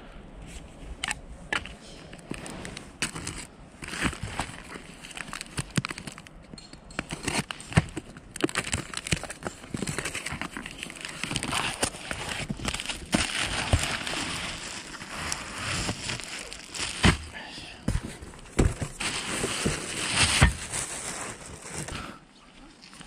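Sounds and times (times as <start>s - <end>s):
rustling and scraping on groundsheet: 1.6s - 5.5s, 9.3s - 17.3s, 17.9s - 22.1s
cardboard box knocks and taps: 17.9s - 18.9s.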